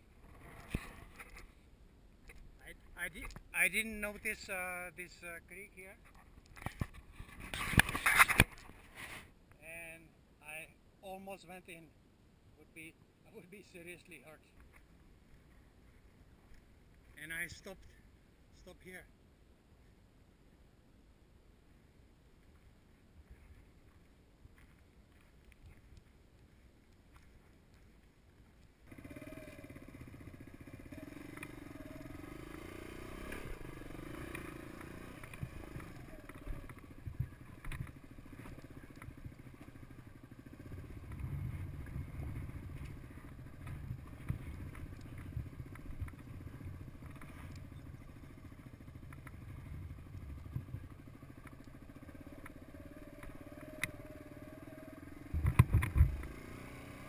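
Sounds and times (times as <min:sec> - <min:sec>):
motorcycle engine running: 0:28.5 - 0:57.0.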